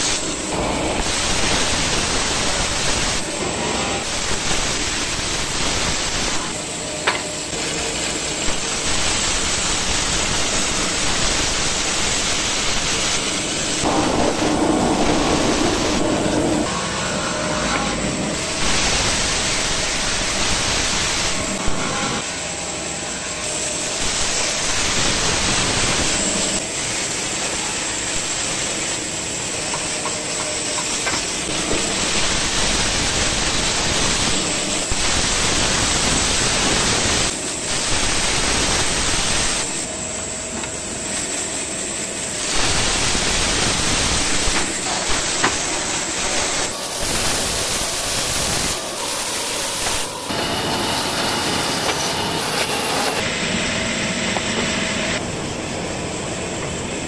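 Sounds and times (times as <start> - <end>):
band saw cutting wood: 44.3 - 55.2.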